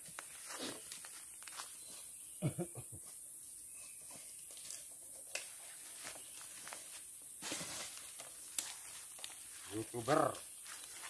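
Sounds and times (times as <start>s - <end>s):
footsteps on leaf litter: 0.0s - 2.3s, 5.5s - 11.0s.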